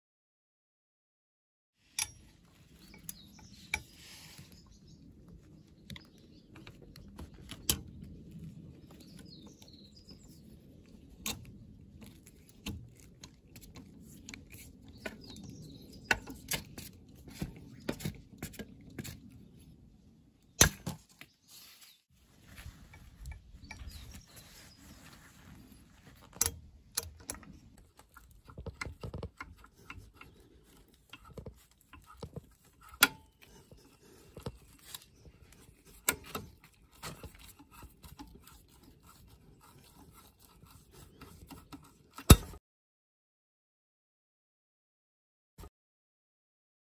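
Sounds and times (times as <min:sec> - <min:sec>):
metal tools clicking: 0:01.9 - 0:03.9.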